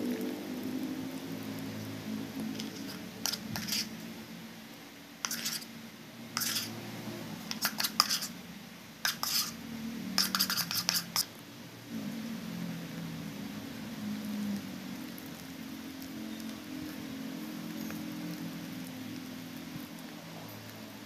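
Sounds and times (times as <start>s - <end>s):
spatula scraping plastic jug: 2.6s - 3.9s, 5.2s - 5.7s, 6.4s - 6.7s, 7.5s - 8.3s, 9.0s - 9.6s, 10.2s - 11.3s.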